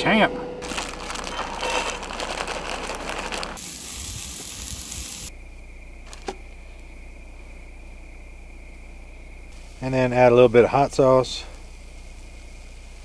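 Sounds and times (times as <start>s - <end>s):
cauliflower sizzling in a pan: 1.1s - 5.3s.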